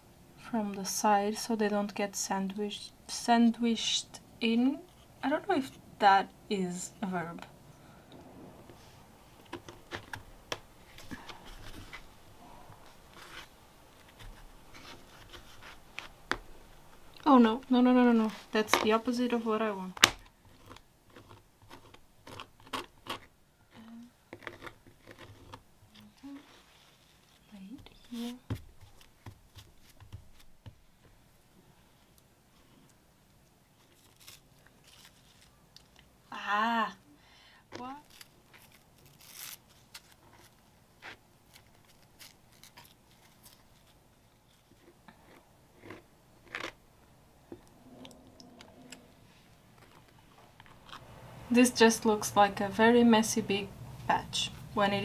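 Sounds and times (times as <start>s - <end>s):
tissue paper crinkling: 33.8s - 35.6s, 38.0s - 40.6s, 41.5s - 44.8s
palette knife scraping burlap: 38.0s - 46.7s.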